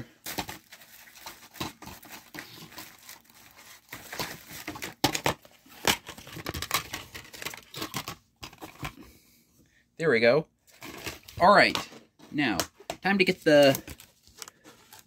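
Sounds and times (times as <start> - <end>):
cardboard sleeve crinkling: 0.3 - 8.8, 13.2 - 15.0.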